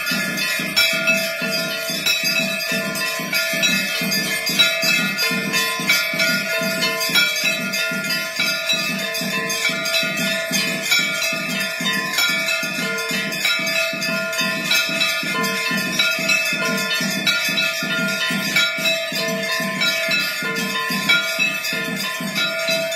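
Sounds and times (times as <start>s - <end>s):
bells ringing: 0.0s - 22.9s
percussion struck in fast rhythm: 0.0s - 22.9s.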